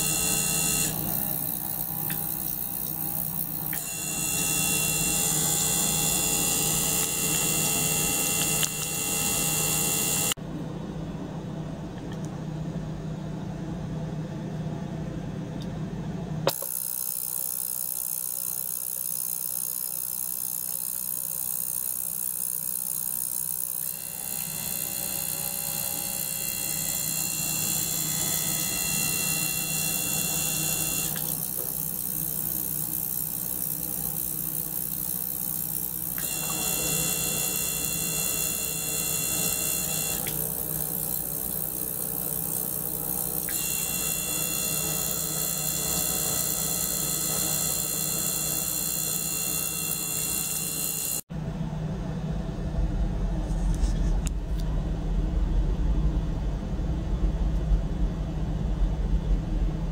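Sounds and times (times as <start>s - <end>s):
electric buzz and hum: 0.0s - 10.4s, 16.4s - 51.3s.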